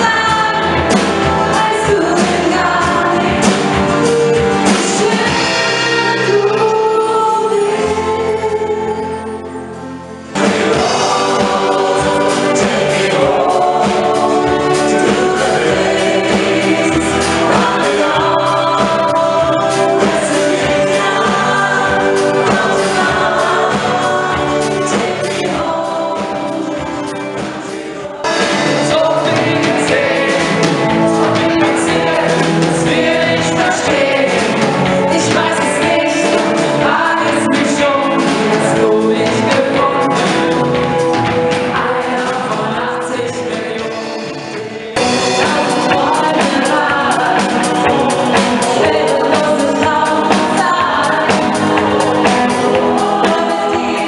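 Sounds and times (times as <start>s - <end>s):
woman singing: 0.0s - 3.7s, 4.6s - 9.3s, 10.4s - 26.9s, 31.6s - 40.7s, 45.0s - 54.0s
crowd singing along: 0.0s - 54.0s
live band playing: 0.0s - 54.0s.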